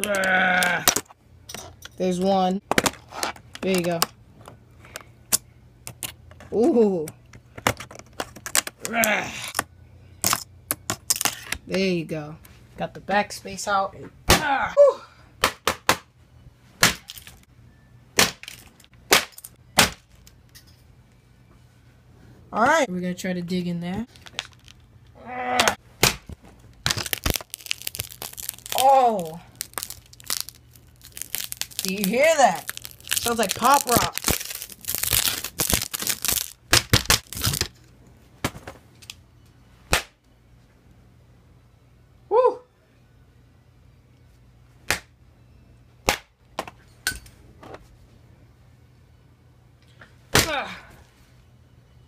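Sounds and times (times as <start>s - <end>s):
plastic keyboard cracking: 7.6s - 9.6s, 26.8s - 28.9s, 29.6s - 37.7s
broken plastic pieces crunching: 16.9s - 17.4s, 18.2s - 20.4s, 24.1s - 24.8s, 26.0s - 37.8s.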